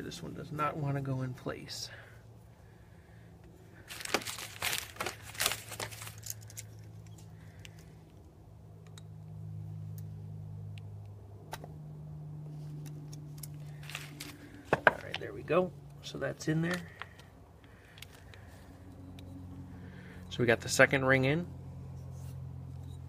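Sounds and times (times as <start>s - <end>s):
steady low hum: 0.0s - 23.0s
metal clicks and handling noises: 3.9s - 7.9s, 12.6s - 15.2s.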